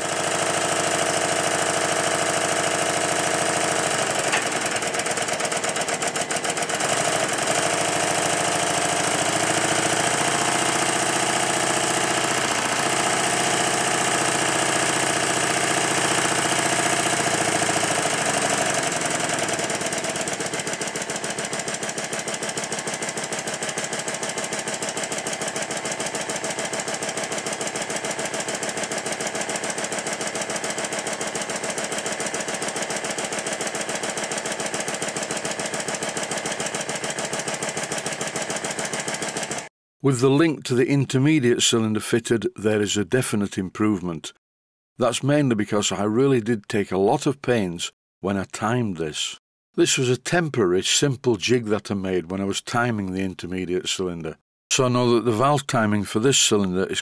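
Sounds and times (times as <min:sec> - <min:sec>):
valve gear clatter: 0:00.0 - 0:39.6
steam engine chuffing: 0:00.0 - 0:39.7.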